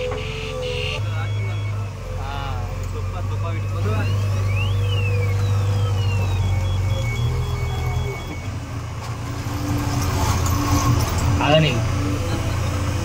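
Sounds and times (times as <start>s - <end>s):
diesel engine running under load: 0.0s - 13.0s
rapid high beeps: 0.2s - 2.0s, 3.4s - 8.5s.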